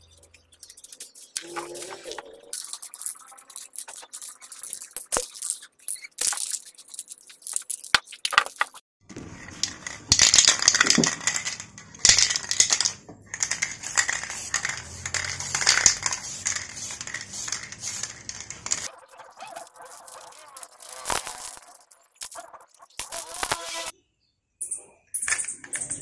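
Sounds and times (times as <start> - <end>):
spray can rattling: 0.6 - 23.9
spray can hissing: 12.1 - 18.9, 23.1 - 23.9.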